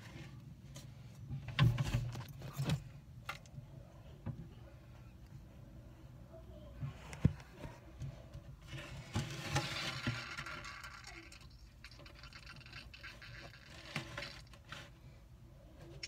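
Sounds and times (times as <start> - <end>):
claws scratching on glass: 8.8 - 15.0.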